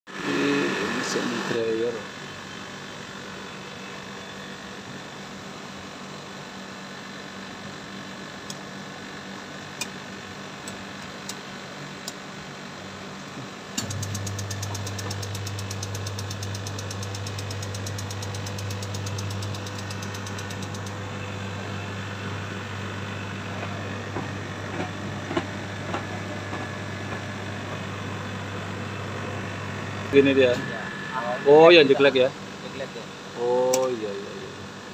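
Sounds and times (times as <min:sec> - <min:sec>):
tumble dryer motor humming: 0:08.2 - 0:34.9
fast even ticking: 0:14.1 - 0:21.0.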